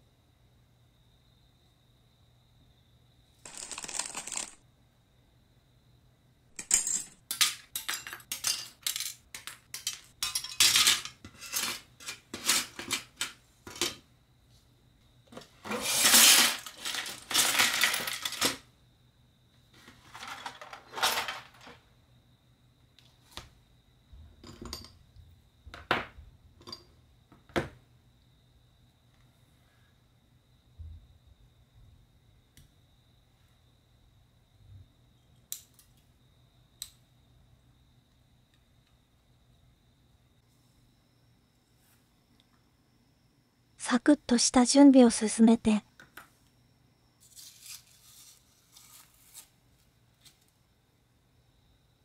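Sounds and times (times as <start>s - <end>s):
plastic parts clicking and clattering: 3.5s - 4.6s, 6.6s - 14.0s, 15.4s - 18.6s, 19.8s - 21.8s.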